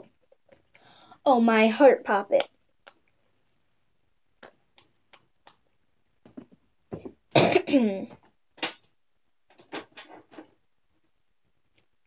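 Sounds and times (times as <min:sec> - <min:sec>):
person coughing: 0:07.3 - 0:08.1.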